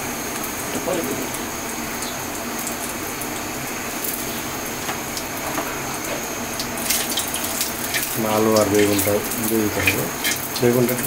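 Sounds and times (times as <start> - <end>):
seeds sizzling in hot oil: 0.0 - 11.0.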